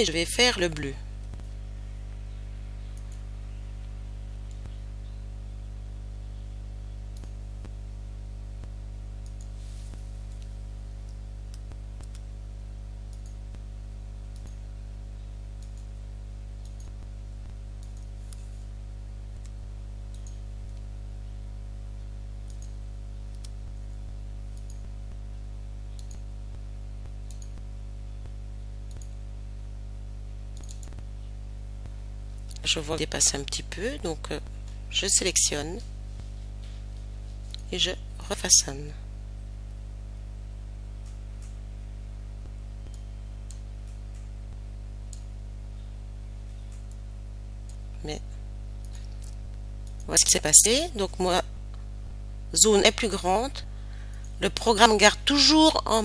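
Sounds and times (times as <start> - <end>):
steady low hum: 0.0 - 56.0
computer mouse clicking: 2.2 - 3.2, 7.1 - 7.7, 9.2 - 12.3, 13.1 - 13.6, 14.3 - 14.6, 15.6 - 15.9, 16.6 - 18.7, 19.3 - 20.9, 22.4 - 23.6, 24.5 - 24.9, 25.9 - 26.3, 27.2 - 27.6, 28.9 - 29.2, 30.6 - 31.0.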